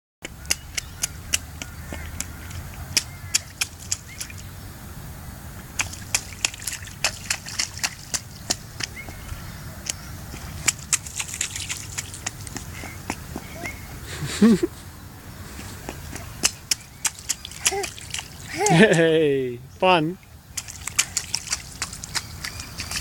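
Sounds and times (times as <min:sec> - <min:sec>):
child splashing in puddles: 0:00.3 - 0:04.5, 0:05.7 - 0:14.7, 0:15.5 - 0:19.1, 0:20.5 - 0:23.0.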